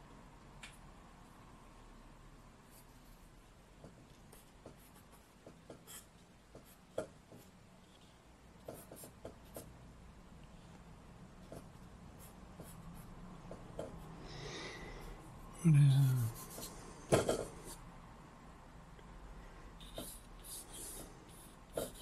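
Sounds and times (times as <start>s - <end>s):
charcoal scratching on paper: 19.8s - 22.0s.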